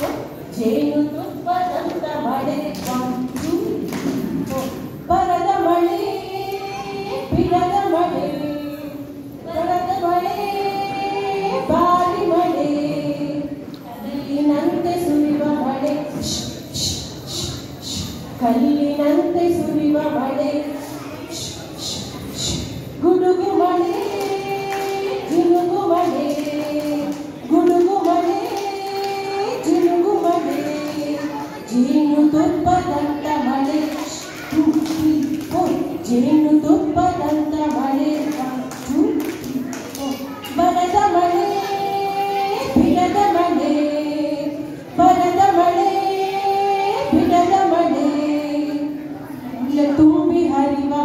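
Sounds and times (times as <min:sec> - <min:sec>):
woman singing: 0:00.0 - 0:20.8, 0:21.4 - 0:39.6, 0:40.5 - 0:49.0, 0:49.6 - 0:51.0
child singing: 0:00.6 - 0:13.4, 0:14.0 - 0:49.0.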